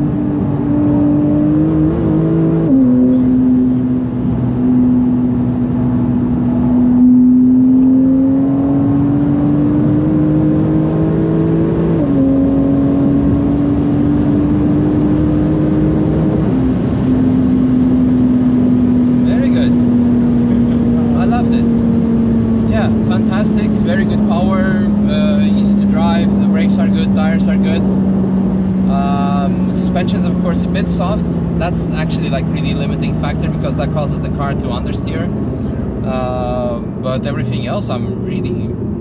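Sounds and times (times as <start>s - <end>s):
car engine accelerating and upshifting: 0.0s - 39.0s.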